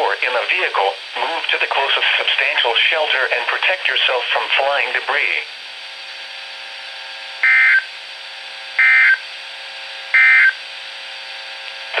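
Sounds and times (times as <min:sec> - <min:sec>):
radio hiss: 0:00.0 - 0:05.6
digital data tone bursts: 0:07.4 - 0:07.9, 0:08.8 - 0:09.2, 0:10.2 - 0:10.6.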